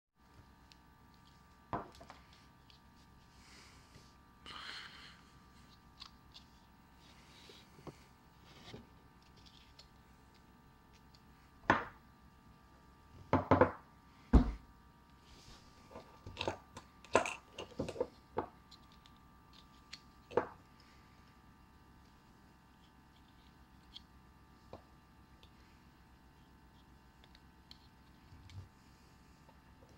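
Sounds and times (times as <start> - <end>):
faint steady hum: 0.2 - 29.9
heavy thump: 14.3 - 14.6.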